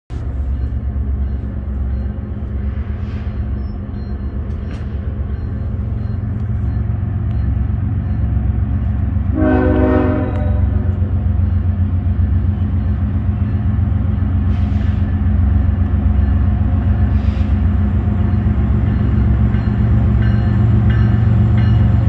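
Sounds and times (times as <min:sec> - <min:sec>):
diesel locomotives rumbling: 0:00.1 - 0:22.0
locomotive air horn blast: 0:09.3 - 0:11.0.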